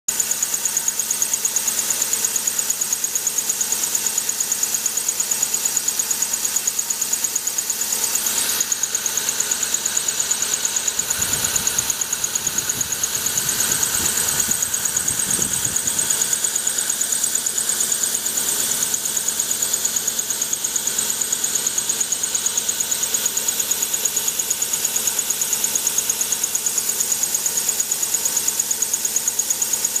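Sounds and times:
thread whirling machine whine: 6.7 - 24.4.

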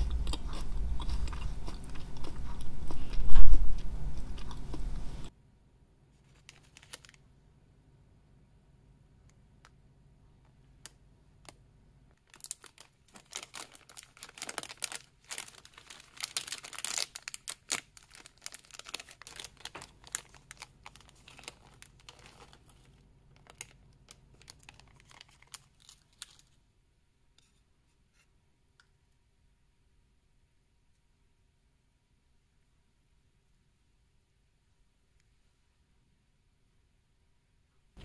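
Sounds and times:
plastic packet crinkling: 6.3 - 7.2, 12.2 - 26.6.

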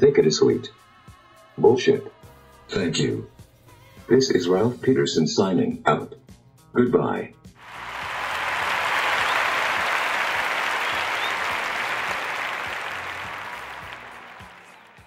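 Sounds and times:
audience applause: 7.6 - 15.0.

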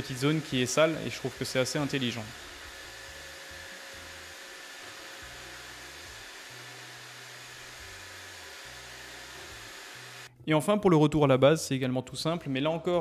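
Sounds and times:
robot vacuum running: 0.0 - 10.3.

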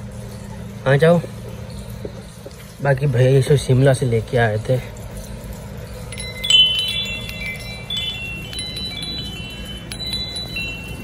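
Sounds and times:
tubular wind chime ringing: 5.2 - 11.0.

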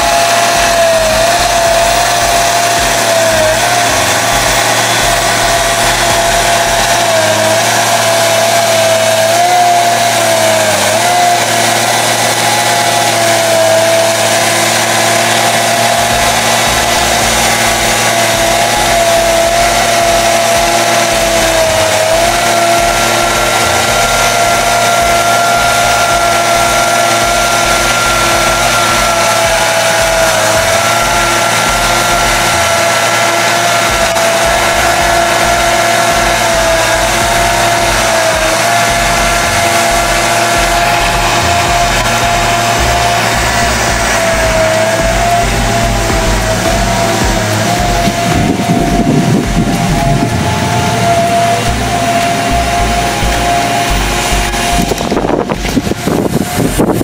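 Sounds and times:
diesel engine running under load: 0.0 - 57.0
high whine: 0.0 - 57.0
second higher whine: 0.0 - 57.0.

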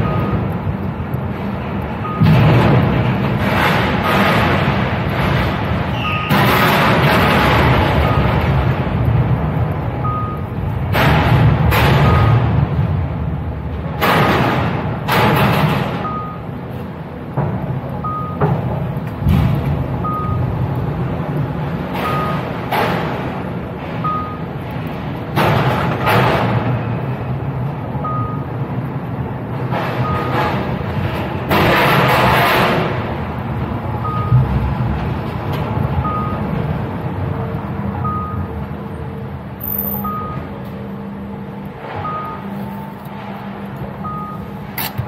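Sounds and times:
electronic warning beeps: 0.0 - 0.7, 2.0 - 2.5, 7.9 - 8.7, 10.0 - 10.7, 11.9 - 12.6, 15.9 - 16.7, 18.0 - 18.7, 20.0 - 20.8, 21.9 - 22.6, 24.0 - 24.7, 28.0 - 28.6, 29.9 - 30.7, 34.0 - 34.6, 35.9 - 36.8, 38.0 - 38.7, 39.5 - 41.2, 41.8 - 43.0, 44.0 - 44.7
low rumble and hum: 0.0 - 45.0.

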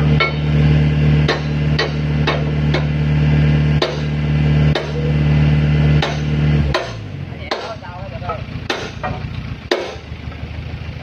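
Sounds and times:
rig engine running: 0.0 - 11.0
sharp knocks on metal: 1.2 - 3.0, 3.8 - 4.1, 4.7 - 5.2, 6.0 - 10.1.

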